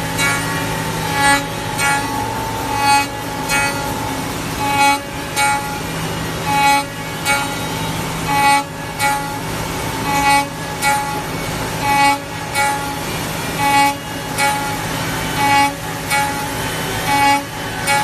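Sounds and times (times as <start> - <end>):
router spindle cutting wood: 0.0 - 18.0.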